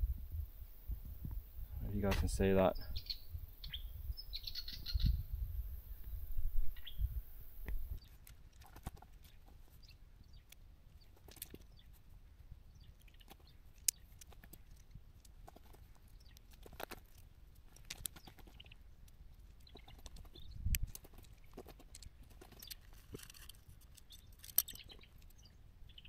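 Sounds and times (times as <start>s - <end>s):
low microphone rumble: 0.0s - 8.0s
bird chirping trill: 2.4s - 8.2s, 24.0s - 26.0s.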